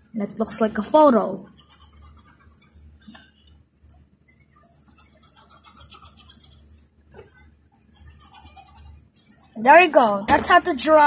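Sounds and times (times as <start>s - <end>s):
pencil scratching on paper: 1.0s - 3.2s, 4.5s - 9.6s.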